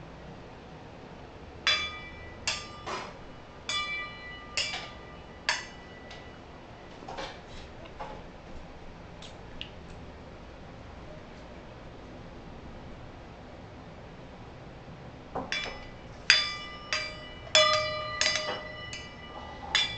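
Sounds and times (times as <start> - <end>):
metal utensils clanking: 1.7 - 6.3, 15.5 - 19.9.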